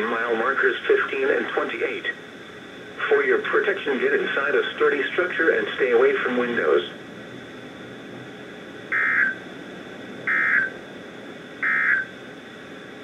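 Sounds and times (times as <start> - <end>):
steady radio hiss: 0.0 - 13.0
harsh digital data bursts: 8.9 - 9.4, 11.6 - 12.1.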